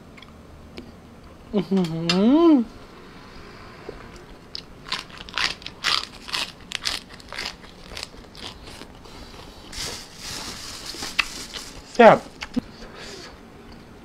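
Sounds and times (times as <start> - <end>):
crisp chewing crunches: 4.5 - 12.6.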